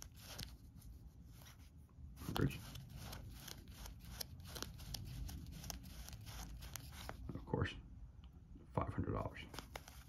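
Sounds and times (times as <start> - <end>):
paper bills flicking: 0.0 - 0.6, 2.2 - 7.2, 9.5 - 10.0.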